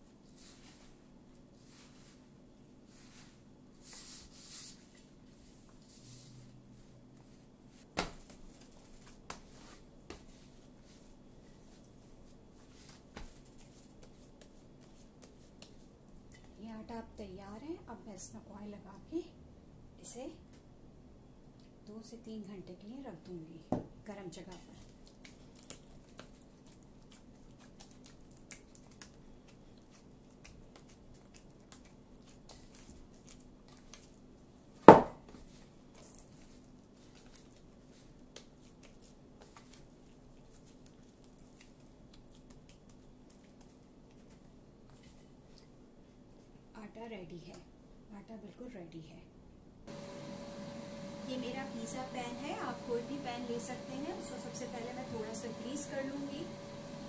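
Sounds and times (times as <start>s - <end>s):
hands kneading dough: 0.0s - 16.8s, 24.4s - 46.6s.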